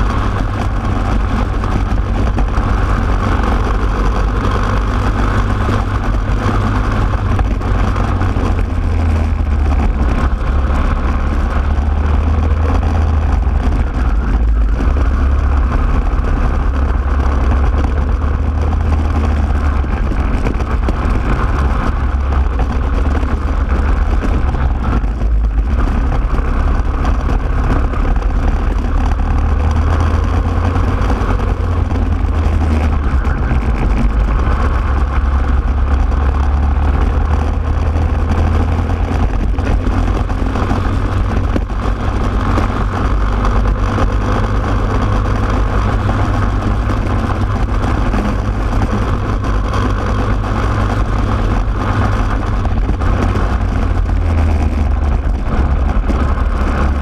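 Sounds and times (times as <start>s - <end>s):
kart engine running hard: 0.0s - 57.0s.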